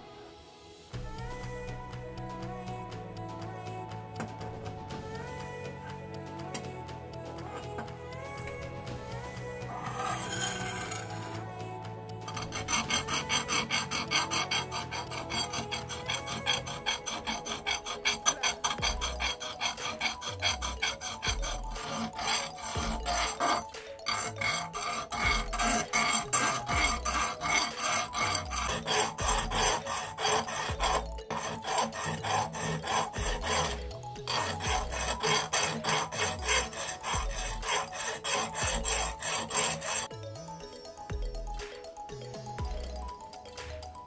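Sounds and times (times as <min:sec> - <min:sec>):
file rasping on metal: 0:07.4 - 0:07.8, 0:09.7 - 0:11.4, 0:12.2 - 0:40.1.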